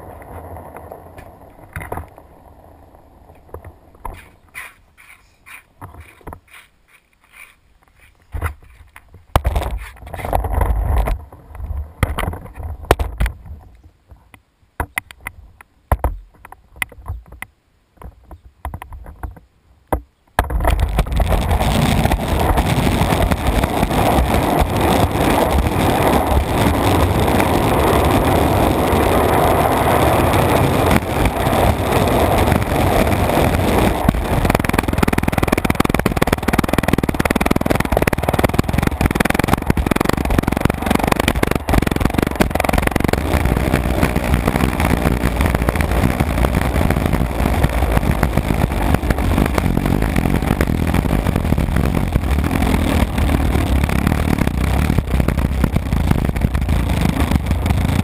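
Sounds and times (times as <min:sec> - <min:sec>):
skateboard knocks and scrapes: 0:00.0 - 0:02.3, 0:03.3 - 0:25.6
skateboard wheels rolling on asphalt: 0:00.0 - 0:19.5, 0:20.4 - 0:58.0.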